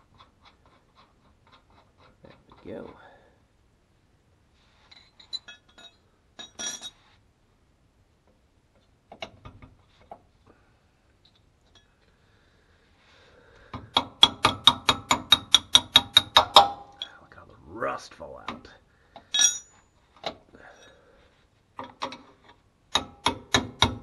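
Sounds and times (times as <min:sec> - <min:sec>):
metal tools clinking: 0:04.9 - 0:07.0, 0:19.2 - 0:19.9.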